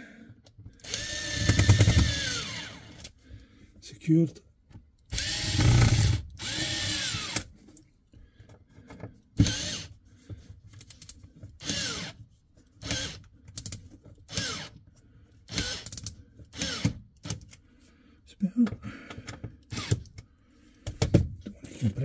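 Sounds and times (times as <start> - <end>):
electric screwdriver whirring: 0.8 - 3.0, 5.1 - 7.5, 9.4 - 9.9, 11.6 - 12.2, 12.8 - 13.2, 14.3 - 14.8, 15.5 - 17.0, 19.7 - 20.1.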